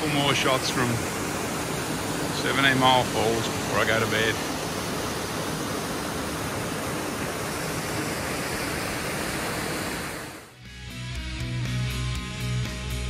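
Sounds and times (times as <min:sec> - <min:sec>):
waterfall rushing: 0:00.0 - 0:10.6
music: 0:10.6 - 0:13.0.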